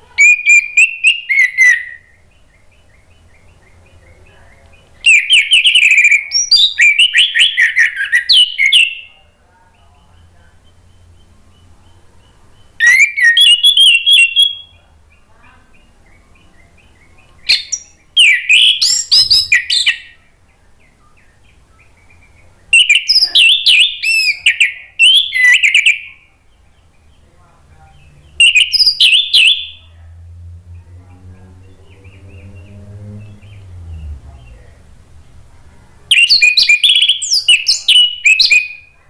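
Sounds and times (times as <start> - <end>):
bird singing whistled phrases: 0.2 - 2.2, 5.0 - 9.1, 12.8 - 14.8, 16.8 - 20.2, 22.7 - 26.3, 28.4 - 29.9, 36.1 - 38.9.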